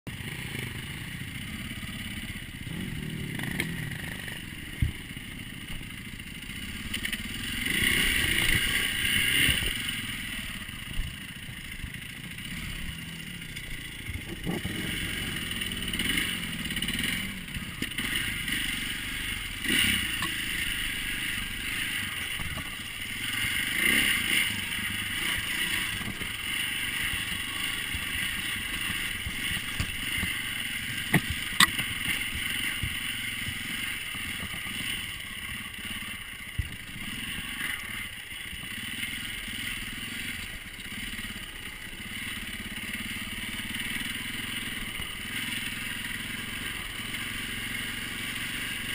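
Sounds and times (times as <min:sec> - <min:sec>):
dirt bike engine revving: 0:00.1 - 0:48.9
bike knocking and rattling: 0:19.4 - 0:23.0, 0:24.9 - 0:35.7, 0:36.5 - 0:37.2.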